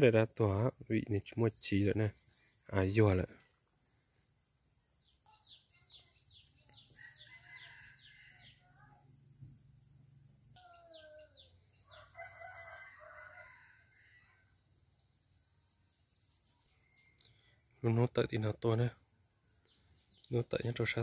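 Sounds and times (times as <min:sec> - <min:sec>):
high insect trill: 0:00.0 - 0:21.0
small birds chirping: 0:00.0 - 0:21.0
faint rooster crowing: 0:05.3 - 0:09.1, 0:10.6 - 0:14.6.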